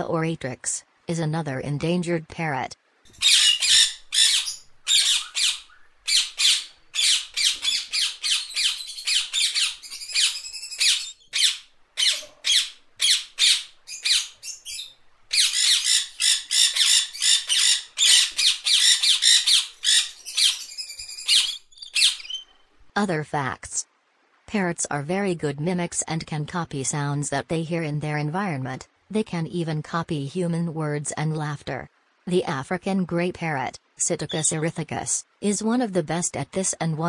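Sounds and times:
lorikeet screeching: 3.1s - 22.5s.

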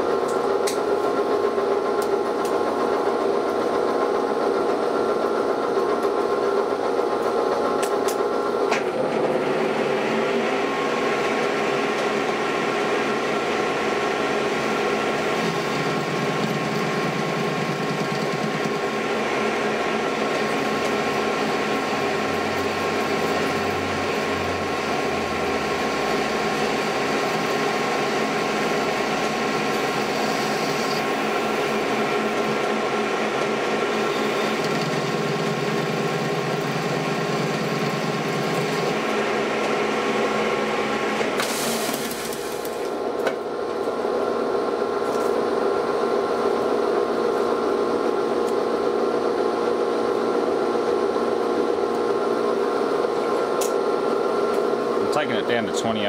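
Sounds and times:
metal lathe whining: 10.8s - 41.3s.

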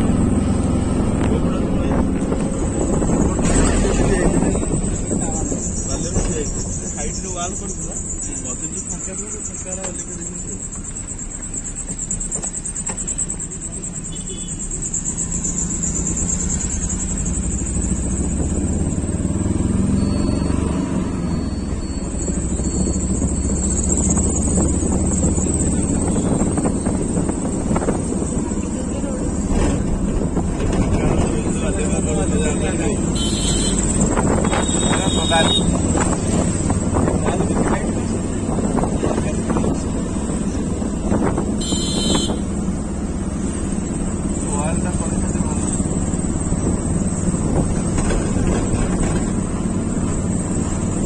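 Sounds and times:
engine rumbling: 0.0s - 51.0s
short high-pitched beep: 19.9s - 23.6s
wind buffeting microphone: 35.7s - 41.6s.

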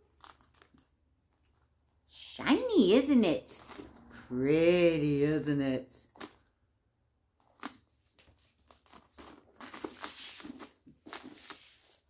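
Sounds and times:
protective wrapping rustling: 0.0s - 1.9s, 3.5s - 4.2s, 7.4s - 12.0s.

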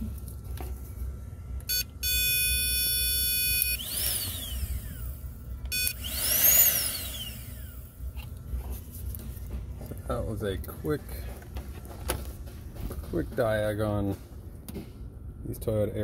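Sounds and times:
electric pump motor whining: 1.6s - 8.4s.

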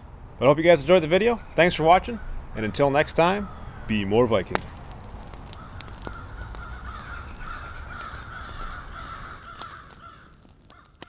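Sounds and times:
harsh crow-like cawing: 3.3s - 4.1s, 5.4s - 11.0s
faint crackling clicks: 4.3s - 11.0s.

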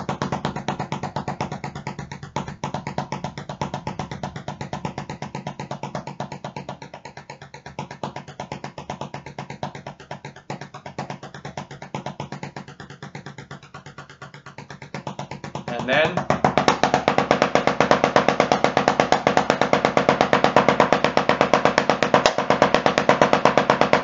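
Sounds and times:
drumsticks on practice pad: 15.4s - 24.0s.

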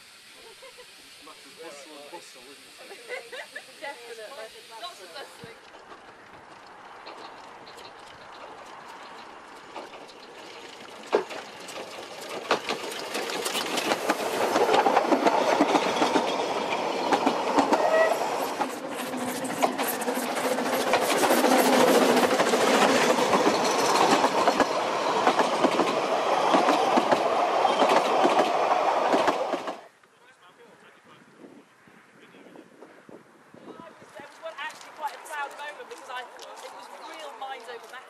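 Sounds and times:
steam train passing: 0.0s - 29.9s
train wheels clicking and clattering: 5.6s - 29.9s.

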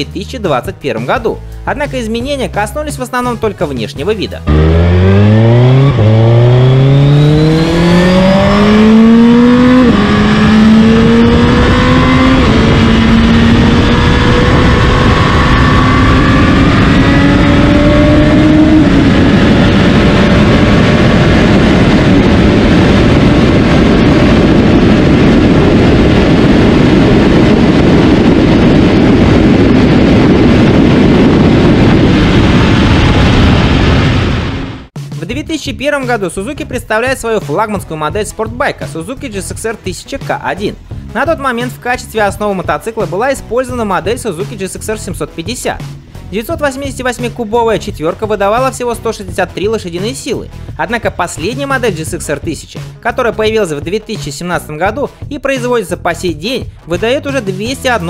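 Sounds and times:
motorcycle engine at full throttle: 4.4s - 34.9s
heavy rush of wind: 4.5s - 35.0s.

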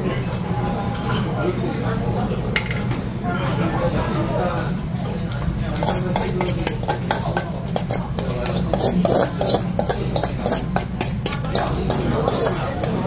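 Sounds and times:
metal spoon scraping metal bowl: 5.7s - 13.0s.

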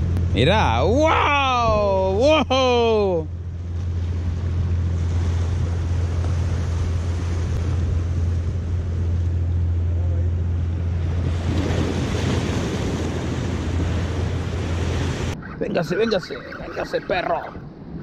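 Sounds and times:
wind rumbling on microphone: 3.3s - 18.0s
waves splashing against rocks: 10.4s - 18.0s.

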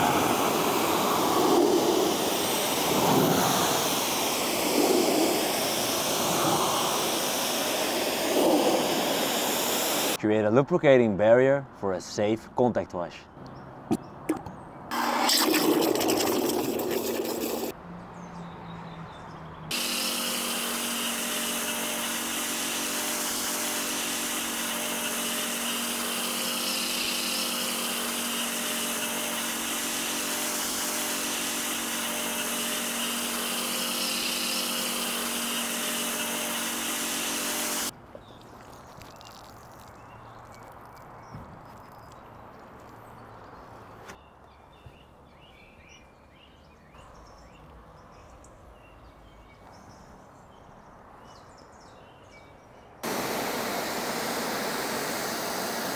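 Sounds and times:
loud rush of water: 0.0s - 1.4s, 53.0s - 55.9s
foam cannon spraying hiss: 0.0s - 10.2s, 14.9s - 17.7s, 19.7s - 37.9s, 53.0s - 55.9s
pressure washer motor hum: 0.0s - 10.2s, 14.9s - 17.7s, 19.7s - 37.9s, 53.0s - 55.9s.

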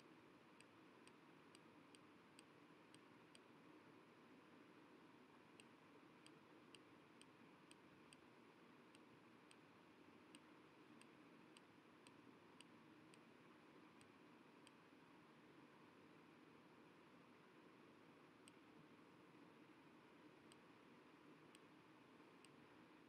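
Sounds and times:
faint steady hiss: 0.0s - 23.0s
soft high ticks: 0.5s - 3.6s, 5.4s - 15.0s, 18.0s - 23.0s.

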